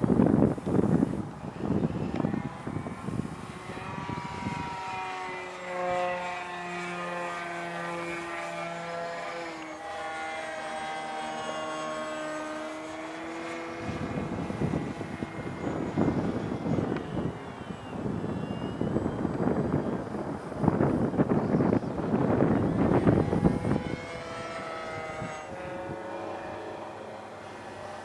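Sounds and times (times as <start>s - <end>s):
model airplane motor droning: 0.0s - 28.0s
wind noise on microphone: 0.0s - 28.0s.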